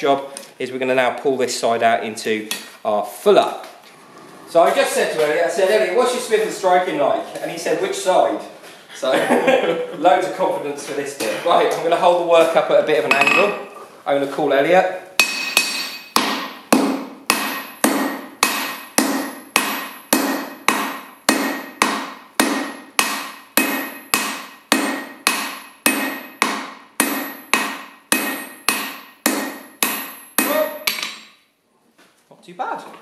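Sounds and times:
hammer blows on steel anvil: 13.1s - 13.7s, 15.2s - 31.3s.

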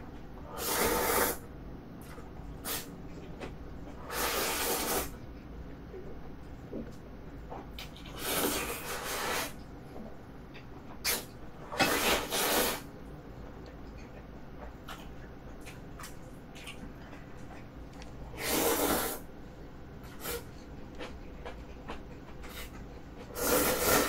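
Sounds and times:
person slurping noodles: 8.1s - 9.6s, 11.8s - 12.8s, 18.4s - 19.2s, 23.3s - 24.0s.

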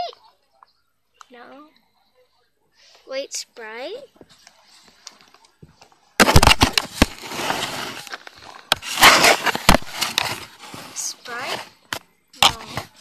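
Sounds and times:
paper rustling: 6.2s - 11.8s.

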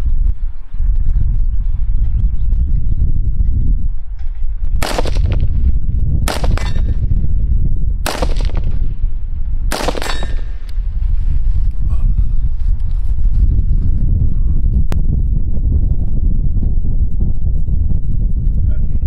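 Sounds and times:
steady low rumble: 0.0s - 19.0s
rifle shots: 4.8s - 5.5s, 6.3s - 7.0s, 8.1s - 8.9s, 9.7s - 10.7s
metallic ring from steel target: 6.5s - 7.0s, 10.0s - 10.6s.

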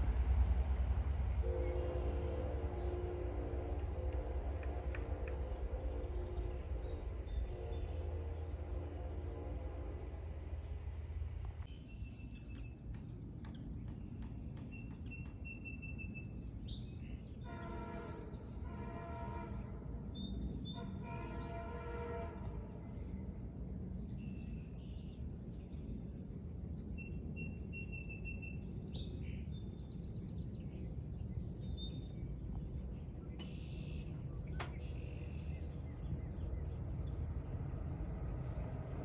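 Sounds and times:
low background rumble: 0.0s - 15.3s, 18.2s - 39.0s
train horn chord: 1.4s - 10.5s, 17.4s - 23.0s
birds chirping: 1.6s - 8.8s, 11.6s - 39.0s.

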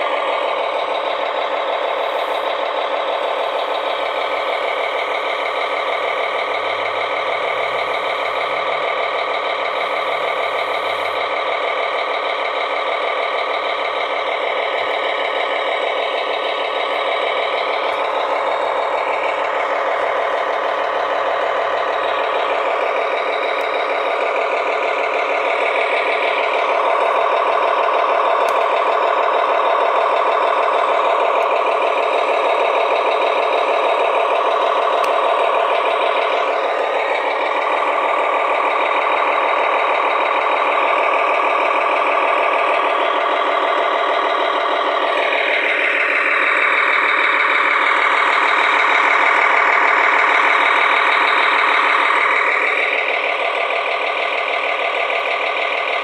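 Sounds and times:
simulated truck engine running: 0.0s - 56.0s.

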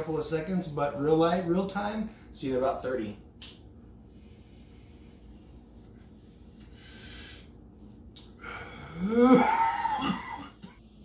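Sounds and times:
man exhaling forcefully with voice: 8.4s - 9.8s.

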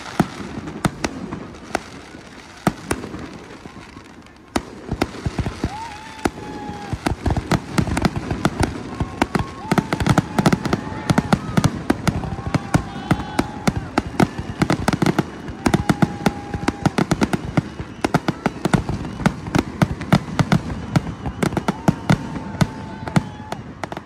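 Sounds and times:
faint firework whistle: 0.0s - 24.0s.

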